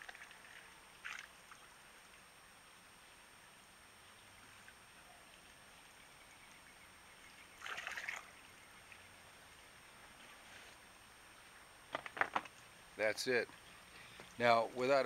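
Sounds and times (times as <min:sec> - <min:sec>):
liquid pouring into water: 0:00.0 - 0:01.7, 0:07.6 - 0:08.4
water trickling: 0:00.0 - 0:15.0.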